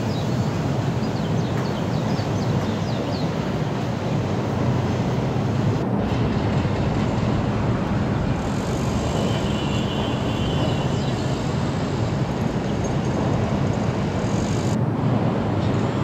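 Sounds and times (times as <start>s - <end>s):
low urban rumble: 0.0s - 16.0s.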